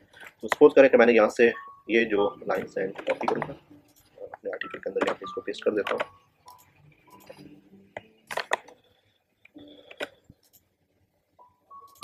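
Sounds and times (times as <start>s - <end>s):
mouse and keyboard clicks: 2.5s - 4.1s, 5.8s - 7.4s.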